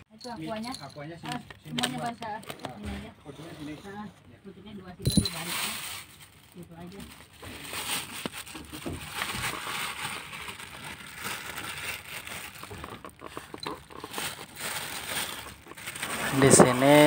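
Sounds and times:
plastic bag crinkling: 0:05.0 - 0:17.0
small clicks and crackles: 0:07.8 - 0:16.8.

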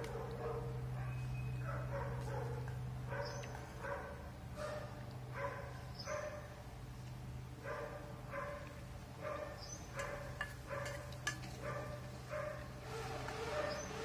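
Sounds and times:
dog barking: 0:00.0 - 0:06.5, 0:07.6 - 0:11.0, 0:11.6 - 0:14.0
metal spoon clinking steel bowl: 0:10.0 - 0:12.1.

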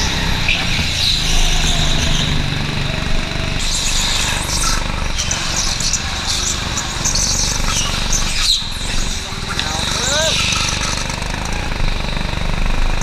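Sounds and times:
go-kart engine: 0:00.0 - 0:13.0.

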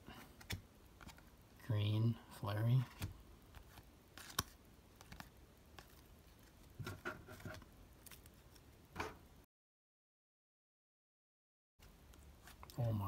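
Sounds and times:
cards sliding and clicking: 0:00.2 - 0:01.3, 0:02.9 - 0:08.6.

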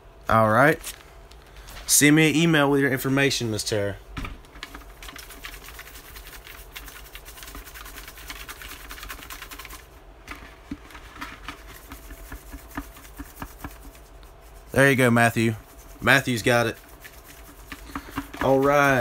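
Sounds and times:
plastic pail rattling: 0:04.5 - 0:14.1, 0:16.2 - 0:19.0.

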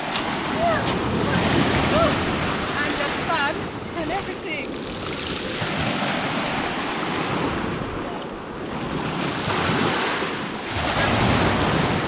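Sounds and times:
waves washing on pebble shore: 0:00.0 - 0:08.0, 0:08.6 - 0:12.0
wind buffeting microphone: 0:00.0 - 0:12.0.

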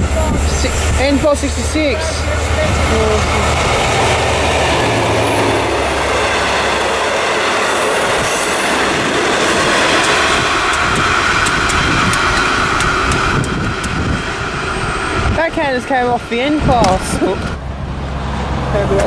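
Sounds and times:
high whine from train wheels: 0:00.0 - 0:19.0
locomotive engine hum: 0:00.0 - 0:19.0
train wheels clicking over rail joints: 0:05.9 - 0:17.6.

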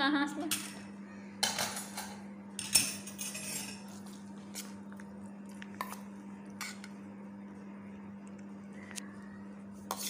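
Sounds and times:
metal spoon clinking on steel bowl: 0:01.4 - 0:03.8.

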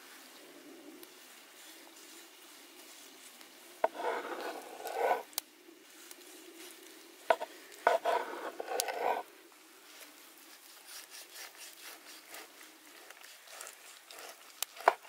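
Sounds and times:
cleaver slicing meat: 0:07.3 - 0:09.2.

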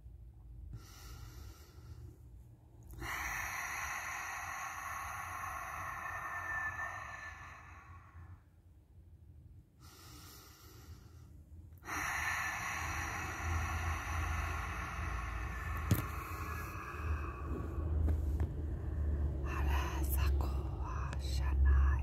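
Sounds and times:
person exhaling into microphone: 0:11.8 - 0:19.8.

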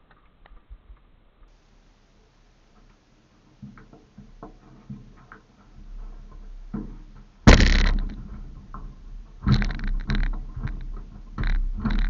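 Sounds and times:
scraping rustle: 0:02.7 - 0:12.0
light clicks and knocks: 0:02.8 - 0:12.0.

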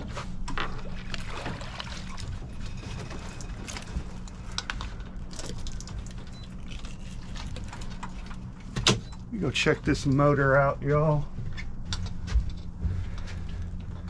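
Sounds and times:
water splashing along hull: 0:00.0 - 0:08.7
boat motor running: 0:00.0 - 0:14.0.

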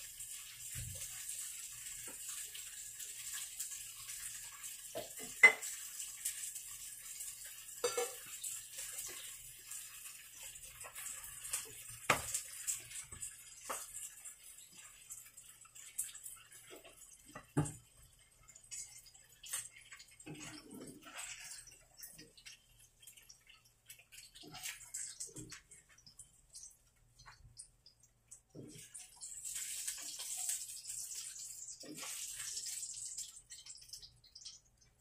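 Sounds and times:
utensils and dishes clicking: 0:07.8 - 0:09.2.

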